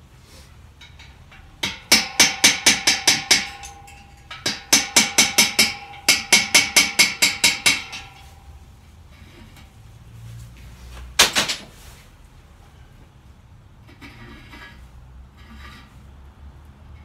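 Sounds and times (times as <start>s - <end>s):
rapid hammer blows on metal keg: 1.3s - 8.4s
keg ringing metallic tone: 1.4s - 8.7s.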